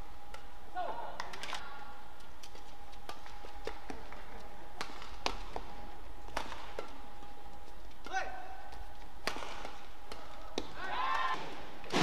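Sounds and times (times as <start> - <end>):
steady low hum: 0.0 - 12.0
rackets striking shuttlecock: 2.4 - 7.2, 8.0 - 11.6.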